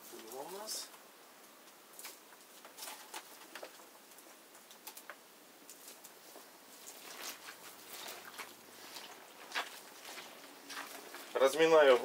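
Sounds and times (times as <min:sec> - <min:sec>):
grapes squishing by hand: 0:06.0 - 0:12.0.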